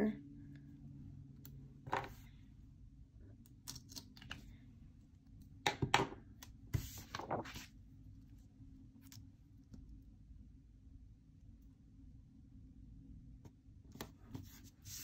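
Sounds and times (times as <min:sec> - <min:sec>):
paper rustling: 0:06.7 - 0:07.7.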